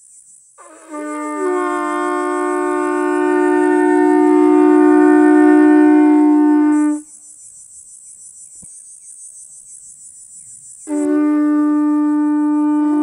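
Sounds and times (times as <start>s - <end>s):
high pulsing insect buzz: 0.0s - 13.0s
conch shell trumpets blowing: 0.6s - 7.1s, 10.9s - 13.0s.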